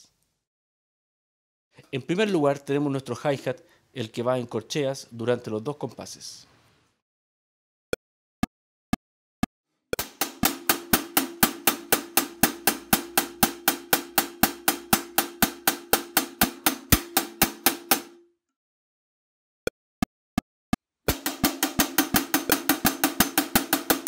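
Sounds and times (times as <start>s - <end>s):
hi-hat playing steady beat: 10.0s - 18.2s, 21.1s - 24.0s.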